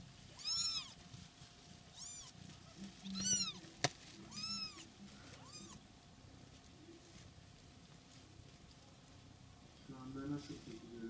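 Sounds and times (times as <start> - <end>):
kittens mewing: 0.3 - 1.0, 1.9 - 3.6, 4.3 - 5.9.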